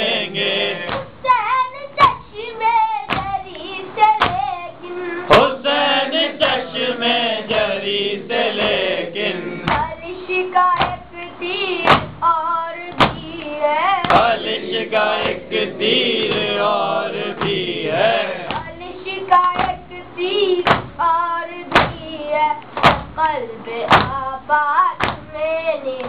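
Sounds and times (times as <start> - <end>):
voices chanting a lament: 0.0 - 1.4, 4.8 - 10.0, 14.0 - 19.4
chest-beating slaps: 0.8 - 1.2, 3.1 - 3.6, 9.6 - 9.9, 10.7 - 11.1, 11.8 - 12.2, 12.9 - 14.4, 16.2 - 16.6, 17.3 - 17.7, 18.4 - 18.8, 23.8 - 24.2.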